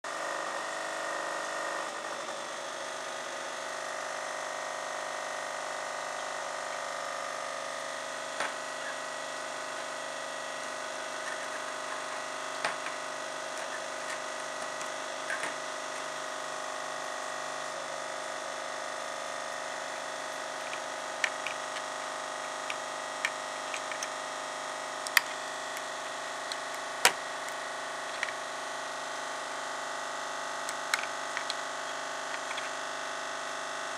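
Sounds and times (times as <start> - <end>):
steady hum with held tones: 0.1 - 33.9
clicks of circuit boards handled: 22.6 - 24.2, 30.7 - 31.6.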